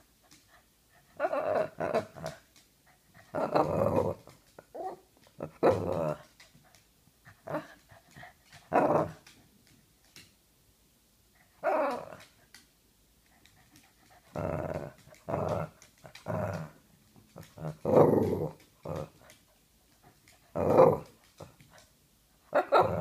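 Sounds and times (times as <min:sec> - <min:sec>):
dog barking and grumbling: 0:01.2 - 0:02.5, 0:03.2 - 0:06.4, 0:08.6 - 0:09.3, 0:11.6 - 0:12.3, 0:14.3 - 0:19.4, 0:20.5 - 0:21.6, 0:22.5 - 0:23.0.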